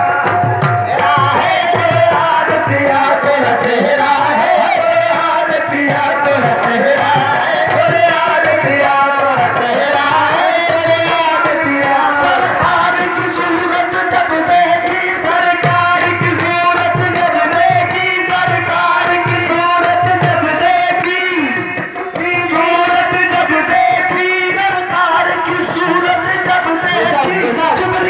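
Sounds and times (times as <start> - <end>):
voices singing: 0.0 - 28.0
hand drum beating: 5.8 - 28.0.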